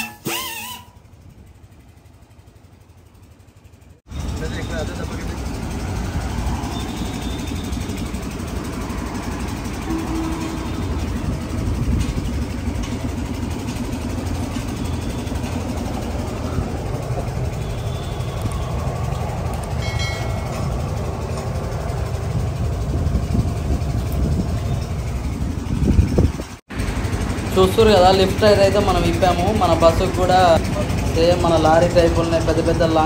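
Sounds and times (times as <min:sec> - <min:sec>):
brief higher tone: 0:00.0 - 0:01.0, 0:09.8 - 0:10.9
low engine rumble: 0:00.0 - 0:33.0.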